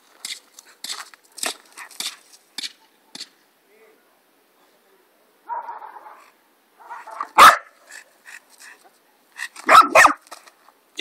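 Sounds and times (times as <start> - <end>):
puppy barking sharply: 6.8 - 7.8, 9.6 - 10.2.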